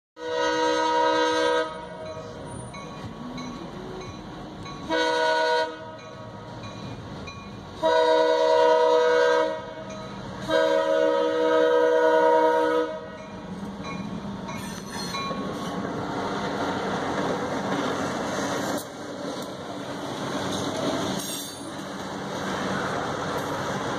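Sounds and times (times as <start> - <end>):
diesel locomotive horn blasts: 0.2 - 2.7, 4.8 - 6.5, 7.8 - 13.3
rumble of rolling train: 0.2 - 23.9.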